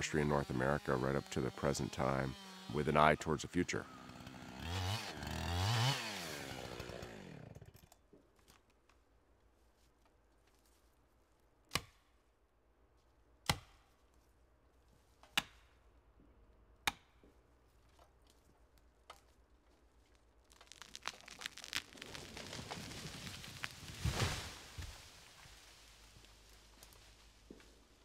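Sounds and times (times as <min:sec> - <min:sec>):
tree cracking and toppling: 0:04.1 - 0:07.5, 0:18.8 - 0:28.0.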